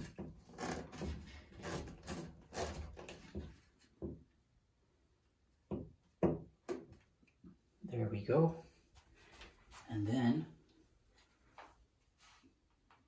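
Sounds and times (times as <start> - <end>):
plastic pipe scraping: 0.0 - 4.0.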